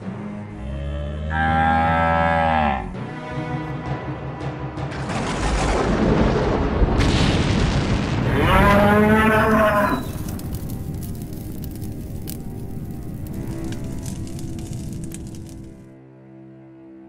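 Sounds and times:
buffalo bellowing: 0.6s - 2.9s
cartoon explosion rumbling: 4.9s - 11.6s
sharp crack: 4.9s - 15.8s.

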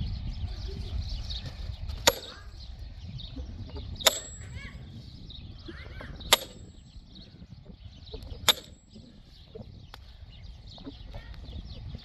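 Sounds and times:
sledgehammer striking log: 2.1s - 2.4s, 6.3s - 6.8s.

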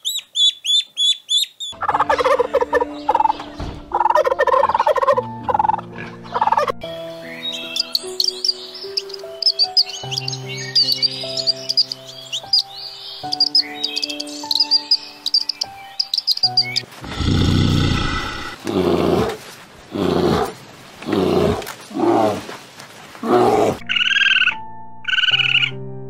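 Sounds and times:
bird chirping rapidly: 0.0s - 1.8s, 7.3s - 16.9s
soft background music: 1.7s - 20.5s, 23.1s - 26.0s
bear growling and roaring: 17.0s - 22.6s, 23.2s - 23.8s.

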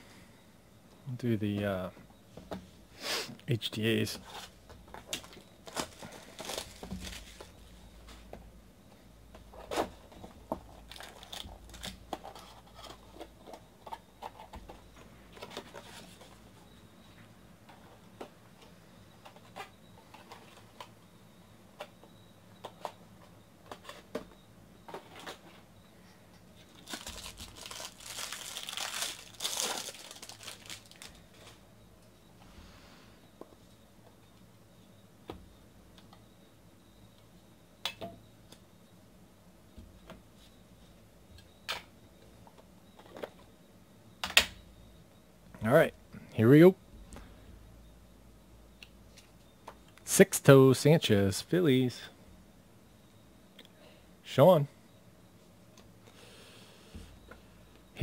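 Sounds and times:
plastic wrapping crinkling and tearing: 5.2s - 7.5s, 10.8s - 13.0s, 26.7s - 31.6s.

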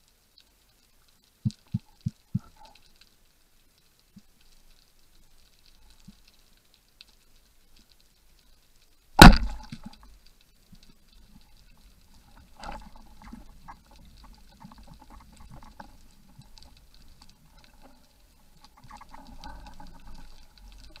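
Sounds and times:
faint clicking: 0.0s - 21.0s
speargun firing crack: 9.2s - 9.7s.

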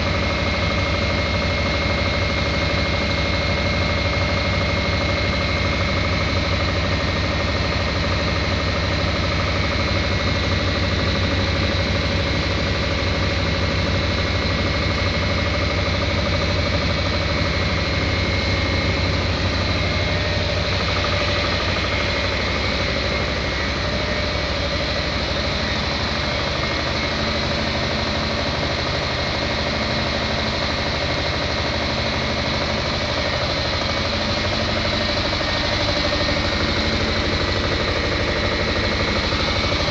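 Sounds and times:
engine running with rapid pulse: 0.0s - 39.9s
steady whining tones: 0.0s - 39.9s.

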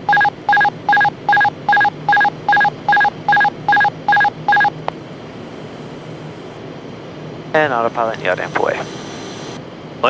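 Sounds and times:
short electronic warning beeps: 0.0s - 4.7s.

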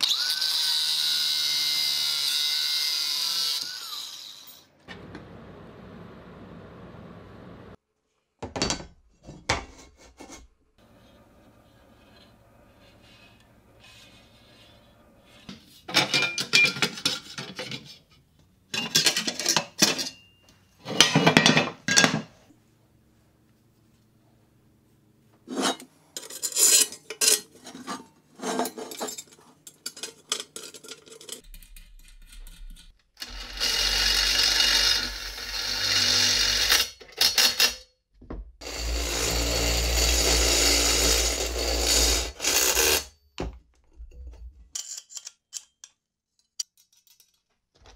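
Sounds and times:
aluminum pieces scraping and clattering: 15.3s - 18.1s, 18.7s - 20.3s, 25.5s - 33.0s, 44.7s - 47.9s.

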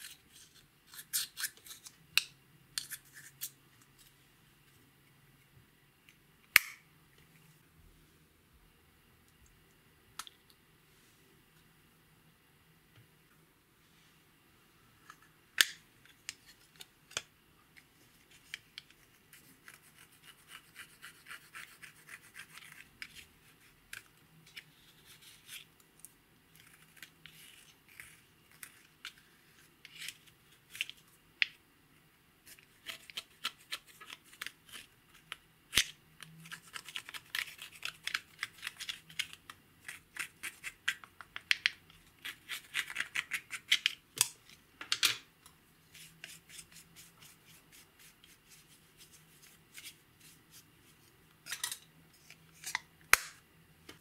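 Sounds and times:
spatula scratching eyeshadow: 18.3s - 24.0s.

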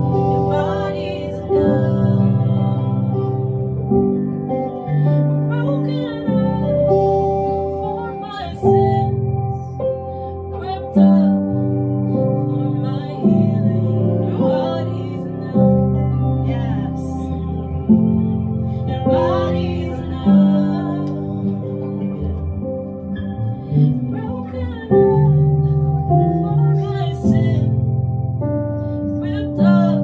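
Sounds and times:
person singing: 0.0s - 9.5s, 10.4s - 22.5s, 29.0s - 30.0s
keyboard playing sustained chords: 0.0s - 30.0s.

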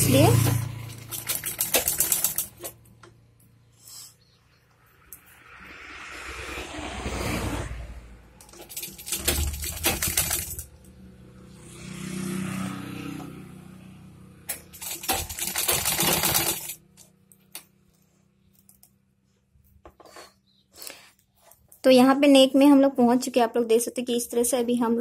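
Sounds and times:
sewing machine clattering: 0.1s - 2.8s, 8.5s - 10.7s, 14.7s - 16.8s.

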